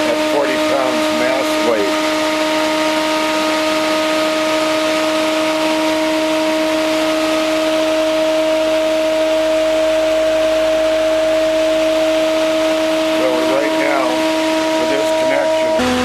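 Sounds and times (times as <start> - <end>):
motor whine: 0.0 - 16.0.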